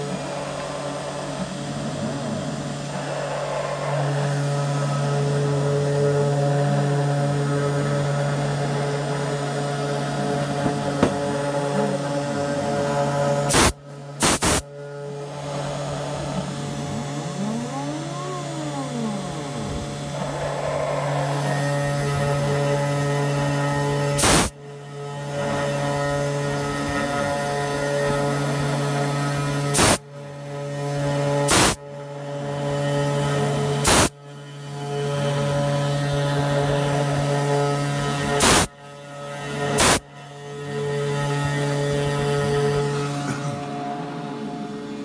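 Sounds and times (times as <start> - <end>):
motors whining in pitch: 0.0 - 45.0
router spindle humming: 0.0 - 45.0
loud sharp bursts: 13.5 - 14.6, 24.2 - 24.5, 29.8 - 30.0, 31.5 - 31.8, 33.8 - 34.1, 38.4 - 38.7, 39.8 - 40.0.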